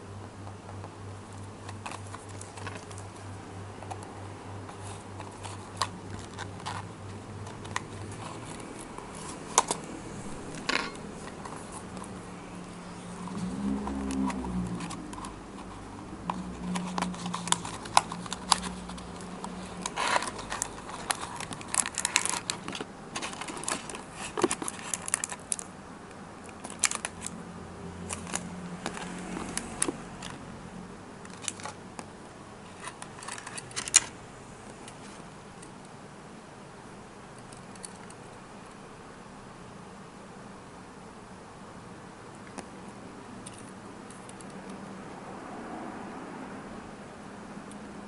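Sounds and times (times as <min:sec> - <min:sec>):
faint low hum: 0:00.0 - 0:48.0
plastic and cardboard crinkling: 0:13.0 - 0:25.7, 0:26.6 - 0:27.3, 0:31.3 - 0:31.8.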